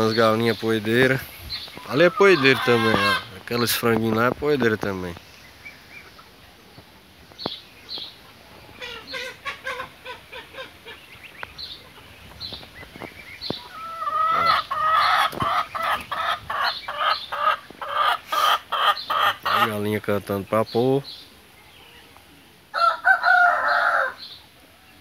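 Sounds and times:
chickens clucking: 0.0s - 25.0s
hen cackling: 1.8s - 3.4s, 8.2s - 12.1s, 13.5s - 19.8s, 22.7s - 24.2s.

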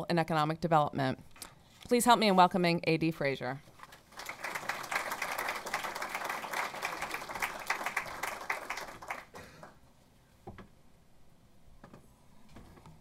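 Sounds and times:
audience applauding: 4.0s - 9.8s.

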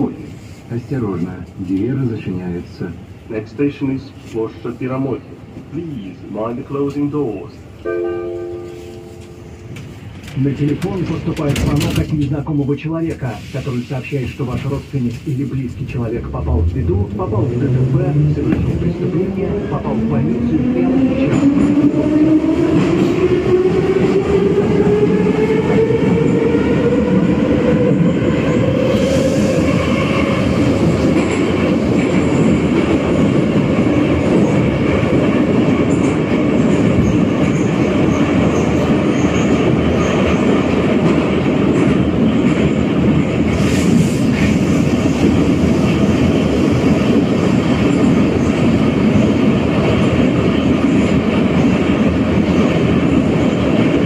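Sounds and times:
rumble of train wheels: 0.0s - 54.0s.

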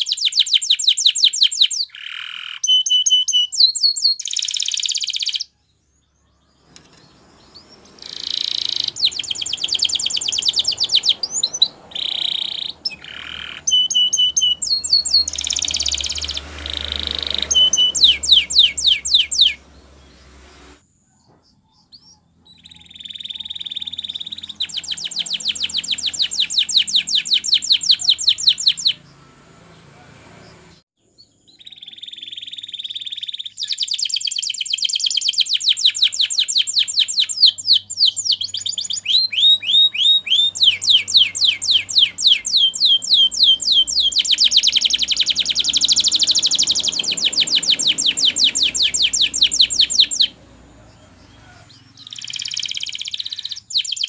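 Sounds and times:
canary singing trills: 0.0s - 54.0s
whistled down-sweeping notes: 13.6s - 20.8s.

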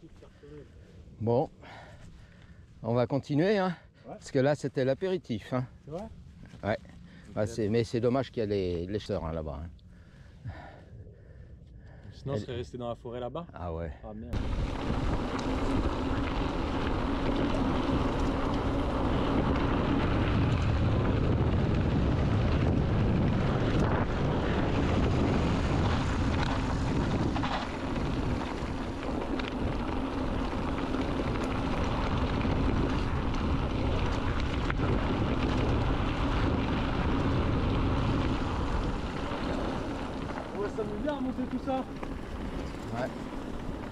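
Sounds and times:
wind buffeting microphone: 14.3s - 43.9s.

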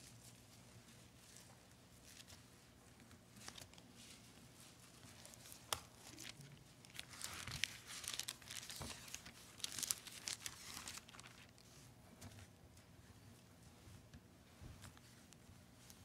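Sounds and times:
thin pages being leafed through: 4.8s - 11.7s.

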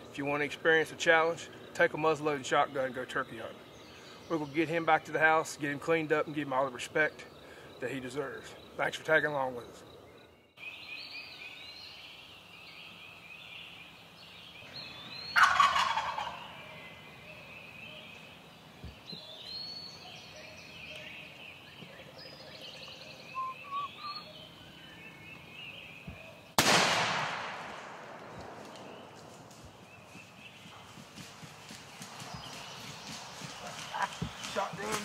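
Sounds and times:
songbirds singing: 0.0s - 26.7s, 28.4s - 35.0s
turkey gobbling: 15.3s - 16.7s, 23.1s - 24.3s.

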